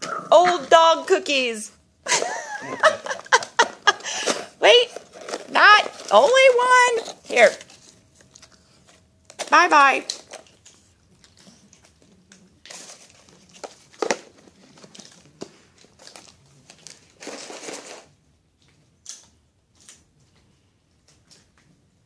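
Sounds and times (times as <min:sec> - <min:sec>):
paper wrapping crinkling: 0:02.1 - 0:18.2.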